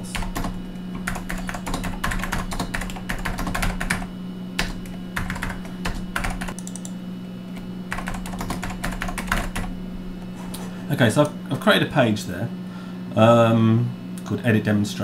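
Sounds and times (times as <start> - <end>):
typing on computer keyboard: 0.1 - 6.9, 7.9 - 9.7.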